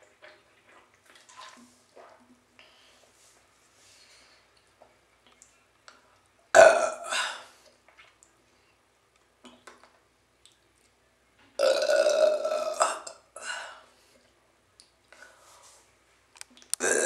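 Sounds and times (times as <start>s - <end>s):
woman burping loudly: 6.6s - 7.4s, 11.6s - 13.2s, 16.8s - 17.0s.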